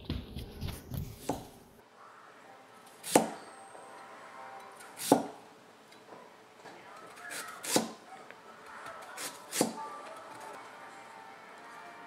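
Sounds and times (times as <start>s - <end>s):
knife chopping on cutting board: 3.1s - 3.4s, 5.0s - 5.4s, 7.3s - 8.0s, 9.2s - 9.8s.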